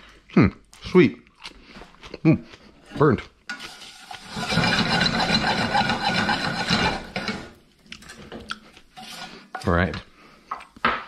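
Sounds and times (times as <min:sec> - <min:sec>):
spatula scraping a pan: 0:03.5 - 0:10.2.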